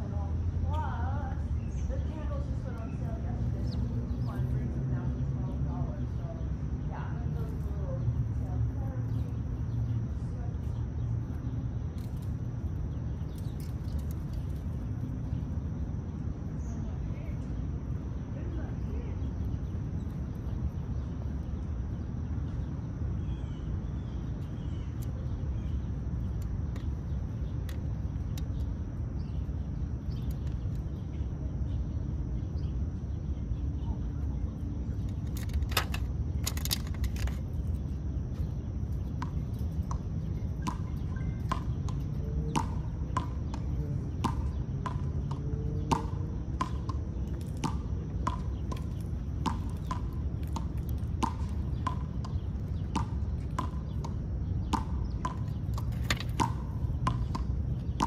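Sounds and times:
low outdoor rumble: 0:00.0 - 0:58.0
squirrel gnawing peanut shell: 0:11.3 - 0:15.6, 0:35.0 - 0:40.8.

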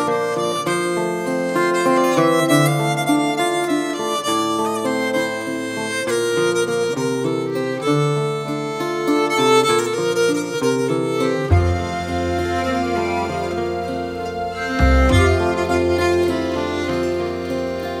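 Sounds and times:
instrumental background music: 0:08.6 - 0:18.0.

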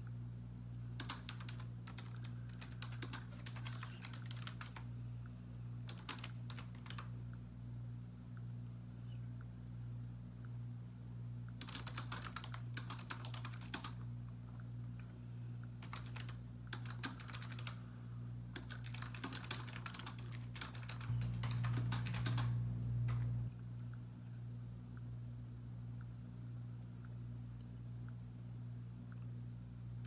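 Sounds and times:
typing on computer keyboard: 0:01.0 - 0:04.8, 0:05.9 - 0:07.1, 0:11.6 - 0:14.0, 0:15.8 - 0:17.8, 0:18.6 - 0:22.6
low hum: 0:20.2 - 0:30.0.

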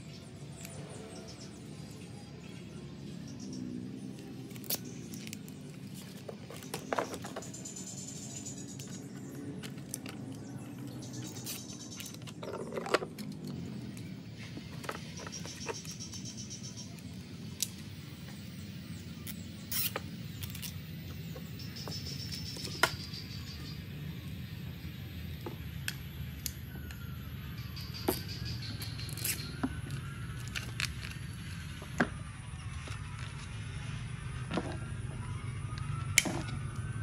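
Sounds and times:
plastic parts clicking and knocking: 0:12.0 - 0:14.0.

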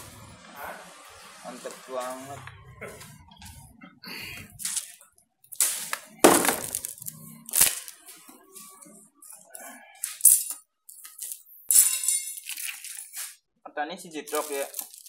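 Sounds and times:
plastic and metal items clattering: 0:05.6 - 0:08.1, 0:10.0 - 0:13.4, 0:14.3 - 0:15.0.

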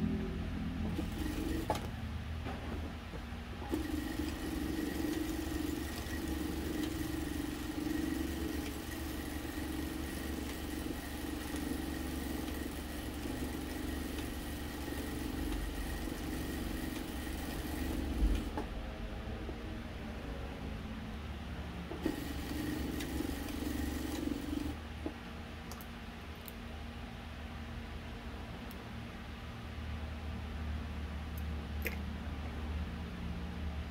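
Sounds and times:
sewing machine running: 0:00.8 - 0:01.9, 0:03.6 - 0:18.7, 0:22.0 - 0:24.8.

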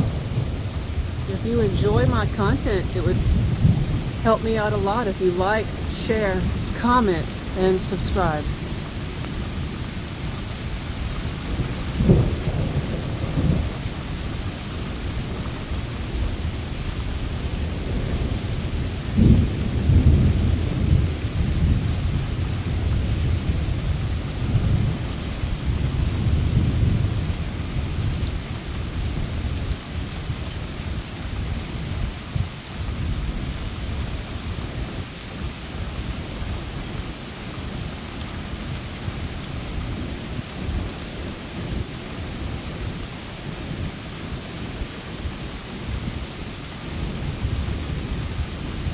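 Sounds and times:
thunder rumbling: 0:00.0 - 0:35.0
steady rain: 0:00.0 - 0:48.9.

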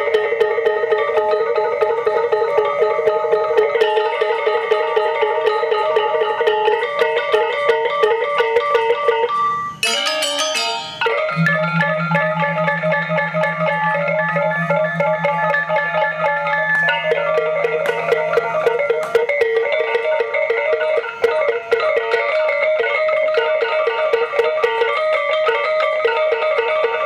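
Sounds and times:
low steady tone: 0:09.8 - 0:18.9
gamelan ensemble playing: 0:09.8 - 0:27.0.

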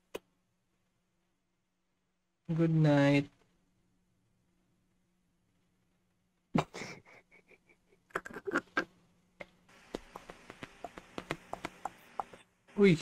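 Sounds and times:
man's stifled laughter: 0:06.6 - 0:08.9.

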